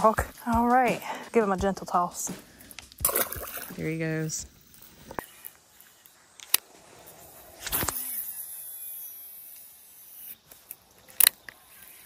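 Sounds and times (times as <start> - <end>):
fishing reel sharp click: 7.6 - 12.0
reel spool whirring: 7.7 - 12.0.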